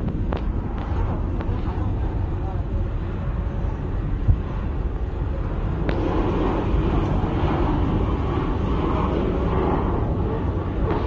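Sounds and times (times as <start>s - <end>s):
jet engines drone: 0.0s - 11.0s.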